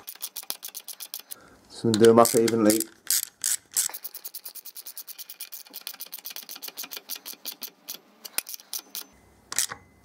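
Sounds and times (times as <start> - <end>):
ratchet wrench clicking: 1.9 - 9.7.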